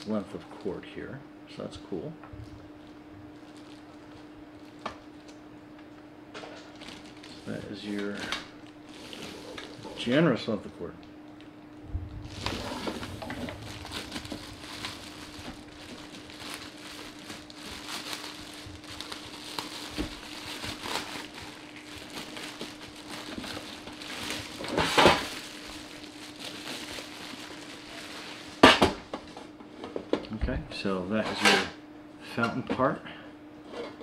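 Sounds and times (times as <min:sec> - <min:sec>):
plastic bag crinkling: 0:02.8 - 0:05.4, 0:06.5 - 0:10.2, 0:12.1 - 0:28.7.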